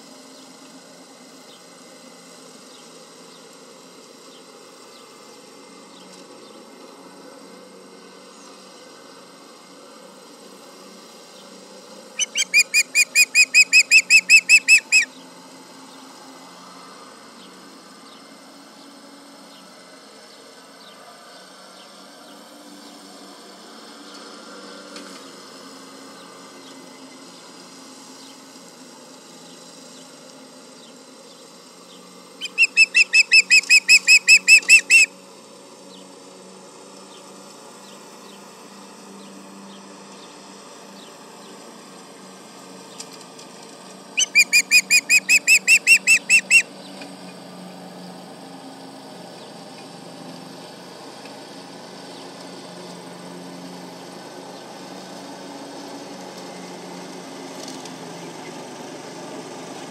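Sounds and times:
osprey whistled alarm chirps: 0:12.2 - 0:15.1, 0:32.4 - 0:35.1, 0:44.2 - 0:46.7.

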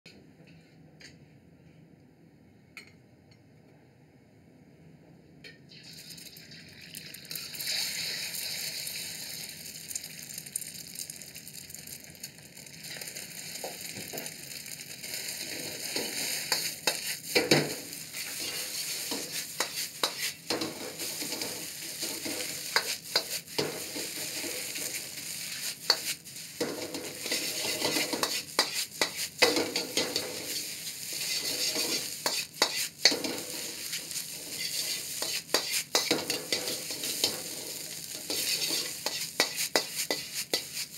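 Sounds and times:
egg sizzling in hot oil: 0:05.7 - 0:40.9
steel ladle scraping a wok: 0:15.0 - 0:40.9.

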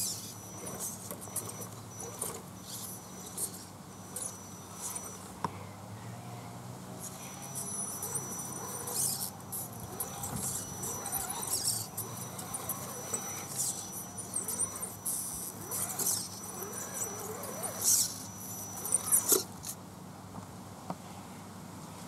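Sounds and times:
high motor and gear whine: 0:00.0 - 0:19.9
tyres scraping on stones: 0:07.1 - 0:19.7.

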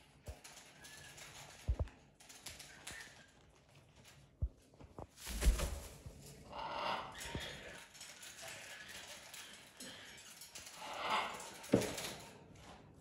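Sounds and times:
animal thump and rustle: 0:04.9 - 0:06.2.

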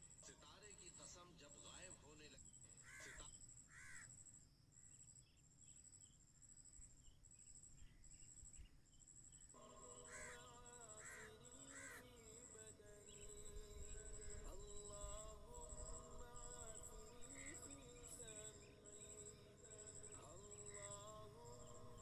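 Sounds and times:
cricket trilling: 0:00.0 - 0:22.0
crow cawing: 0:02.7 - 0:04.2, 0:10.0 - 0:12.3
faint music with held tones: 0:09.3 - 0:22.0.

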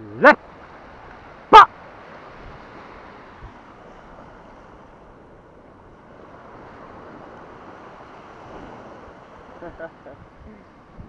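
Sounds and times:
small waves breaking on sand: 0:00.0 - 0:11.0
wind on microphone: 0:06.0 - 0:11.0.

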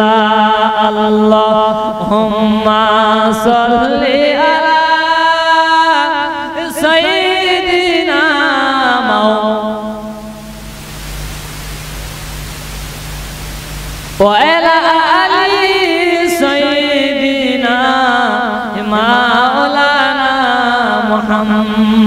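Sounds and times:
steady hiss: 0:09.9 - 0:16.5
low hum: 0:10.2 - 0:14.3.

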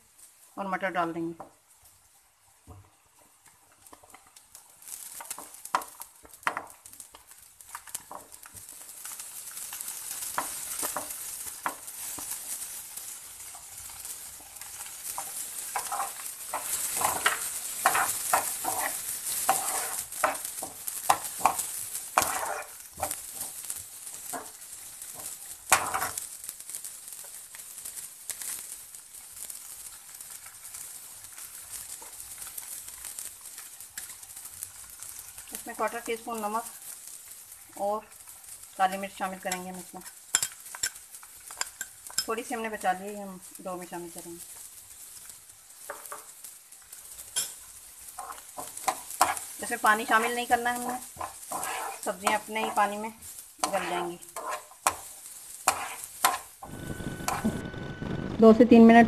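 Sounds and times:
vegetables sizzling in oil: 0:00.0 - 0:59.0
metal spoon scraping a pan: 0:09.1 - 0:26.2, 0:39.5 - 0:43.0, 0:44.5 - 0:57.4.

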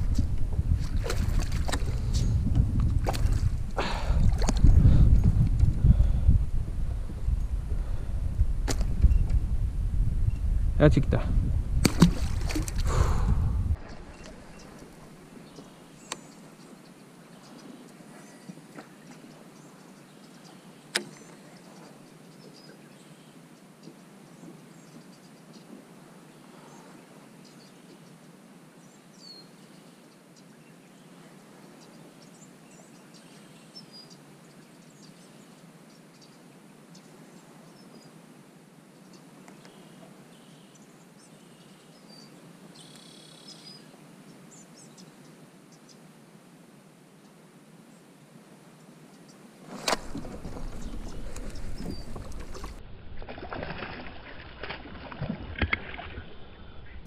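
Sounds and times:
water sloshing against hull: 0:00.0 - 0:06.1, 0:11.8 - 0:16.2, 0:49.6 - 0:56.4
fish thrashing and splashing: 0:00.8 - 0:02.1, 0:11.8 - 0:12.9, 0:49.7 - 0:56.2.

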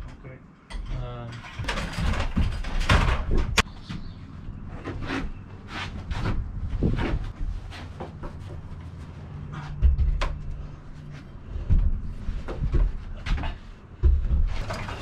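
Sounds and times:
footsteps on plywood floor: 0:05.8 - 0:14.8
wooden beam knocking and thudding: 0:09.6 - 0:10.6, 0:11.6 - 0:15.0.

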